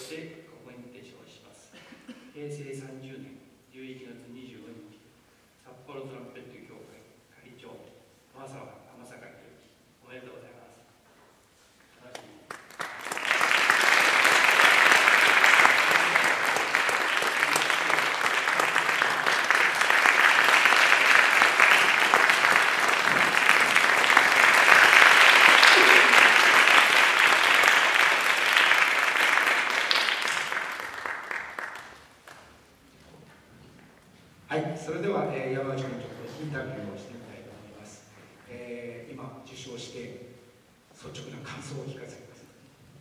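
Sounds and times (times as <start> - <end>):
audience applauding: 12.5 - 32.6.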